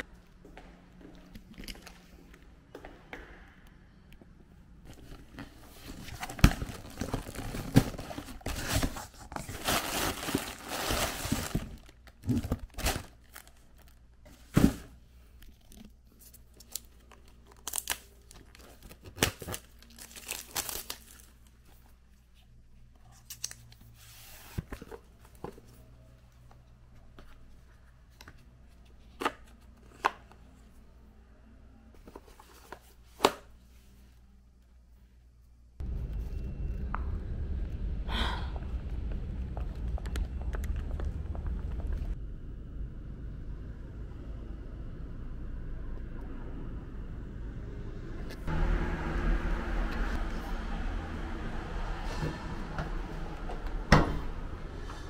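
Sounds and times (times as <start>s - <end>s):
tearing and crinkling: 5.9s - 14.0s, 15.5s - 21.5s.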